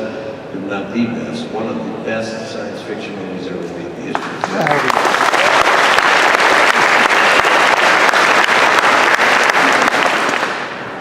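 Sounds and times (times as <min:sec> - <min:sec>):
audience applauding: 0:04.2 - 0:10.9.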